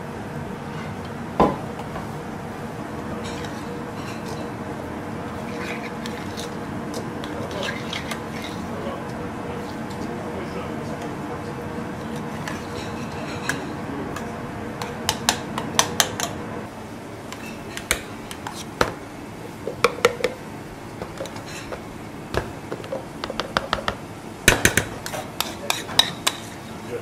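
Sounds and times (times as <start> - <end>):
steady background hum: 0.0 - 27.0
metal spoon scraping a saucepan: 3.2 - 4.5, 5.4 - 6.6, 7.2 - 8.8, 12.0 - 13.7, 25.0 - 26.8.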